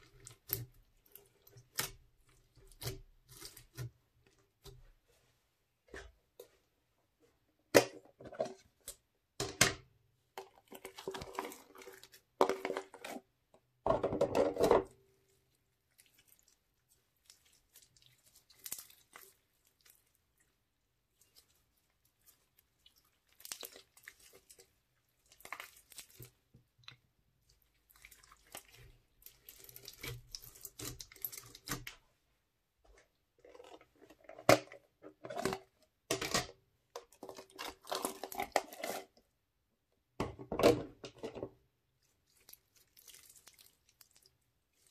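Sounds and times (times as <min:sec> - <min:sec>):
slime squishing and crackling: 0:15.4 - 0:32.0, 0:37.0 - 0:39.2, 0:42.0 - 0:44.9.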